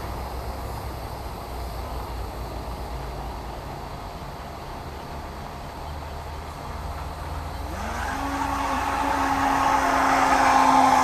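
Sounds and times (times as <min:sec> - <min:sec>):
electric motor whine: 0:07.7 - 0:11.0.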